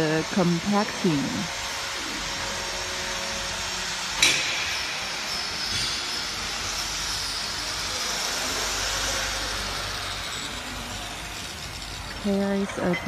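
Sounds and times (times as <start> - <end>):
workshop background noise: 0.0 - 13.0
sharp metal clank: 4.2 - 4.8.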